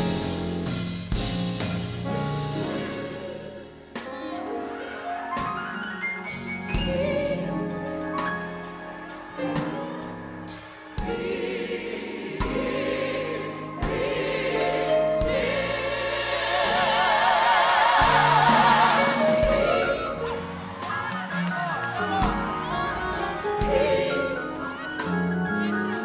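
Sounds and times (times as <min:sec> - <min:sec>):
choir singing sustained chords: 0:02.3 - 0:05.5, 0:06.1 - 0:25.7.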